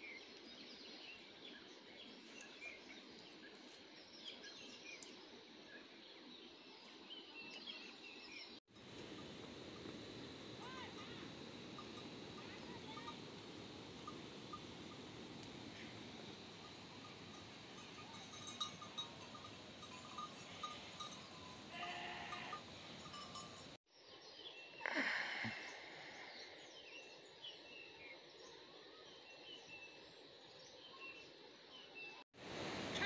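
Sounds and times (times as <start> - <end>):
goats bleating: 21.7 - 22.7.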